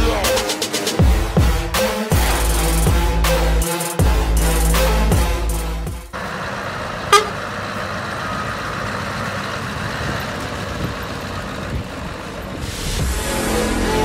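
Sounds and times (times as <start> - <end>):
diesel truck engine pulling away: 2.2 - 14.0
brief sharp pitched sound: 7.1 - 7.4.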